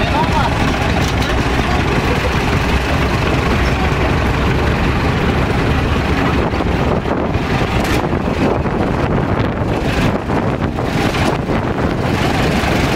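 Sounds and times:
engine running: 0.0s - 12.9s
wind buffeting microphone: 0.0s - 12.9s.

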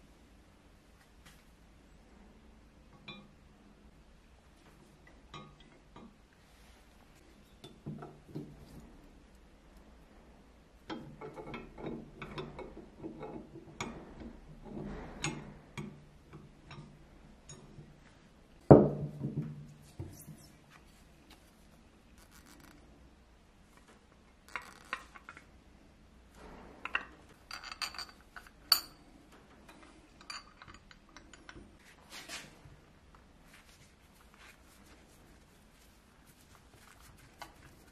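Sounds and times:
iron parts clinking: 26.4s - 31.6s.

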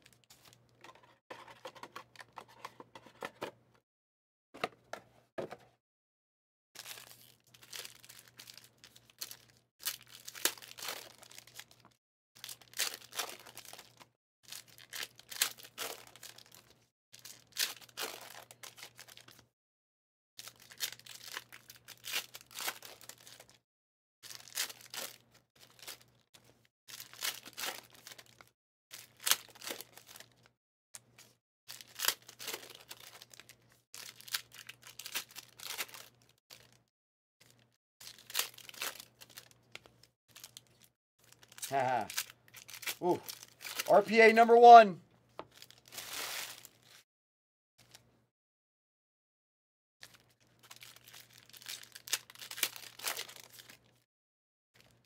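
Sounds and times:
foil wrappers tearing and crinkling: 6.8s - 11.9s, 12.5s - 14.0s, 20.4s - 23.6s, 24.2s - 26.2s, 26.9s - 30.4s, 31.7s - 36.8s, 37.5s - 44.1s, 45.5s - 47.0s, 50.1s - 54.0s.

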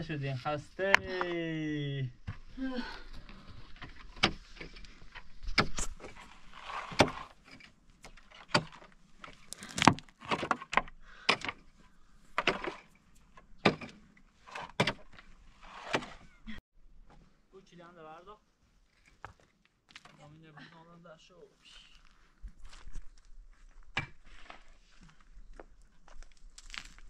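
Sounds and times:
scrape of loosened dirt: 3.2s - 10.4s, 14.2s - 16.4s, 24.1s - 25.4s.

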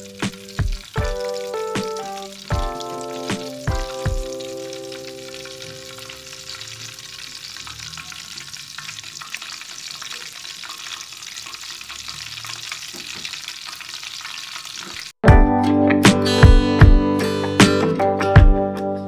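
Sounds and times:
batter deep-frying in hot oil: 0.0s - 15.2s.

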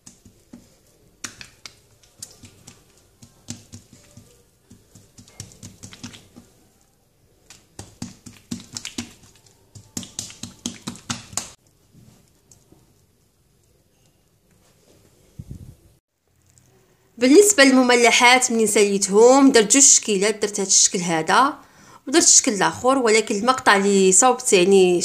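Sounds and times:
hands slapping dough: 0.0s - 6.8s, 7.4s - 11.6s.

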